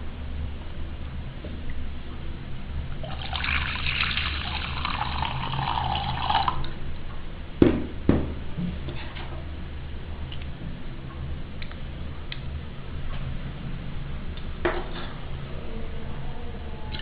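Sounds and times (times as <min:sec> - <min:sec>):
liquid pouring into a glass bowl: 0:03.0 - 0:06.7
sharp knocks: 0:07.6 - 0:08.4.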